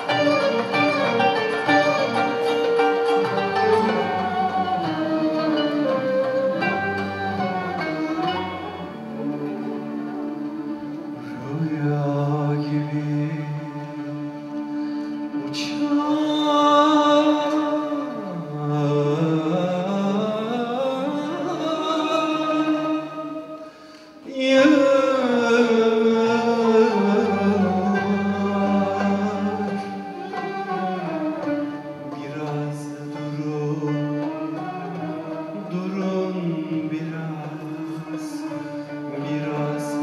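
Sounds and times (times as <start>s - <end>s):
ney and oud ensemble: 0.0s - 40.0s
man singing: 11.2s - 14.4s, 15.4s - 23.5s, 24.2s - 31.4s, 32.0s - 40.0s.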